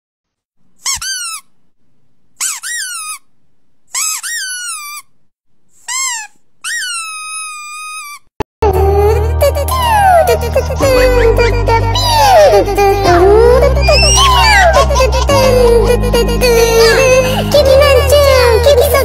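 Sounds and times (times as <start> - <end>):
puppy whining howls: 13.8 - 14.8.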